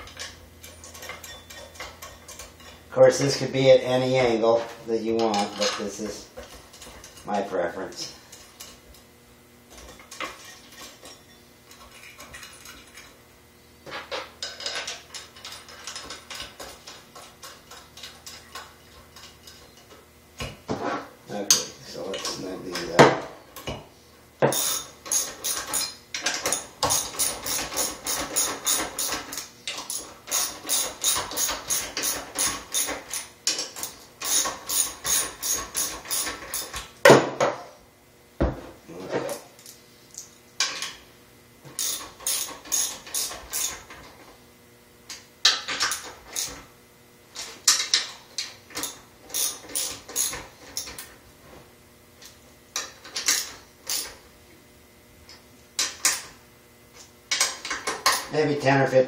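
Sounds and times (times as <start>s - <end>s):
ratchet wrench clicking: 24.5s - 36.7s, 41.8s - 43.8s, 47.7s - 50.9s, 53.2s - 54.1s.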